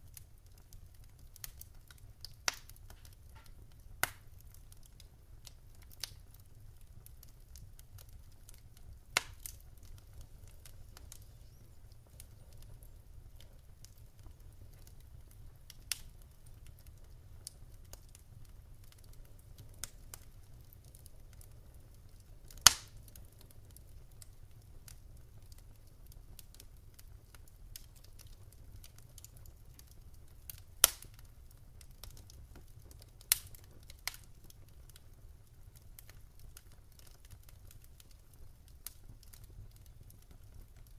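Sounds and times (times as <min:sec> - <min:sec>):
wood fire crackling: 0:00.0 - 0:40.9
faint low rumble: 0:03.0 - 0:22.2.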